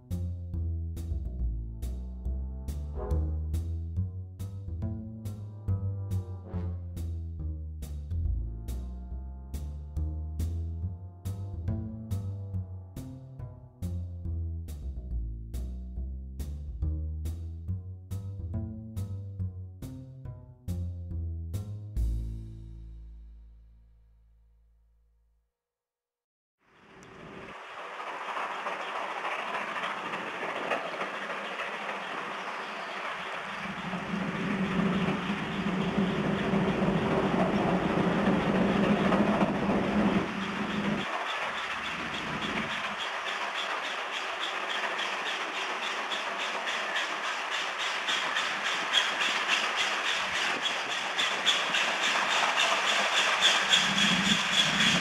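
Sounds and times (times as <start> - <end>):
music: 0.0 - 24.4
train running: 6.1 - 7.1, 26.7 - 55.0
steam locomotive exhaust beats: 26.9 - 55.0.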